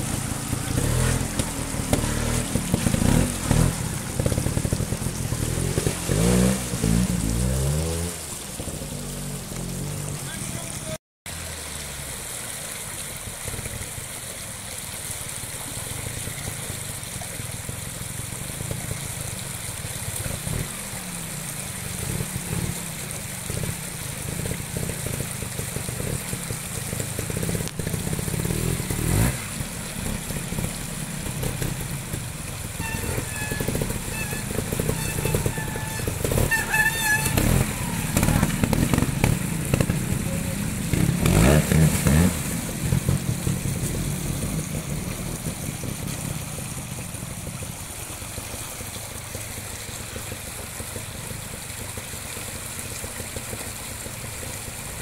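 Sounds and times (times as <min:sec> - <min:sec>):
motorcycle engine revving: 0:00.0 - 0:11.0, 0:20.1 - 0:47.7
shallow stream rushing: 0:00.0 - 0:55.0.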